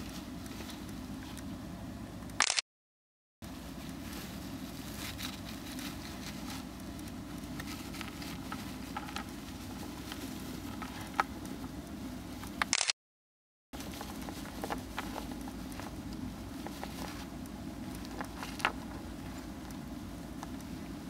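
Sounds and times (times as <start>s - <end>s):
steady low hum: 0.0s - 2.6s, 3.4s - 12.9s, 13.8s - 21.0s
hamster rustling in paper bedding: 3.4s - 11.7s, 13.8s - 19.7s.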